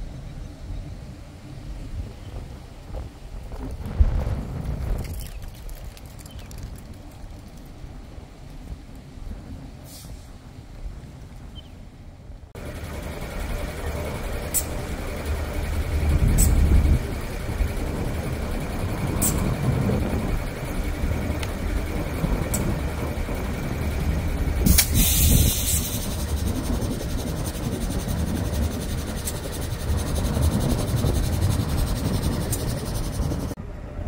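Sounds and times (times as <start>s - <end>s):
diesel locomotive idling: 12.5s - 34.0s
hissing burst: 24.6s - 32.9s.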